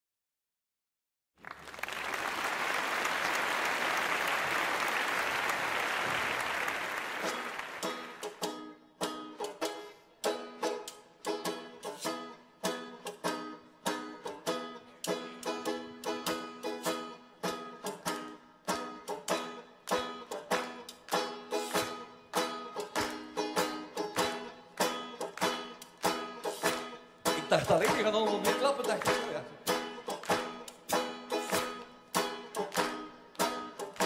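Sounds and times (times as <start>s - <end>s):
audience applauding: 1.4s - 8.4s
plucked string melody: 6.7s - 34.0s.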